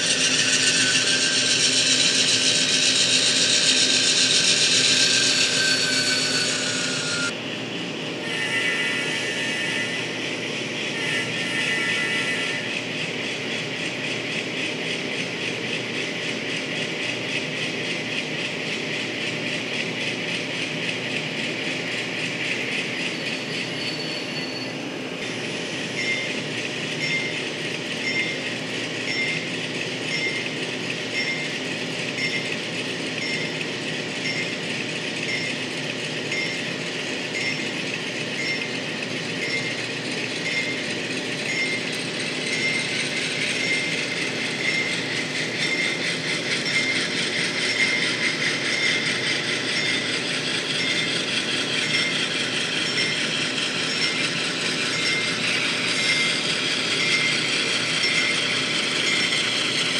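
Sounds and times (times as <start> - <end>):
model train wheels rattling on rail: 37.1 - 59.9.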